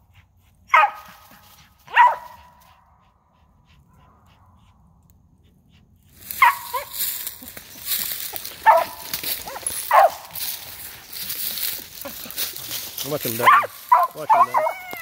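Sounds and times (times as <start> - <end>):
dog barking: 0.7 - 1.3, 1.9 - 2.6, 6.4 - 6.9, 8.6 - 10.3, 13.3 - 14.9.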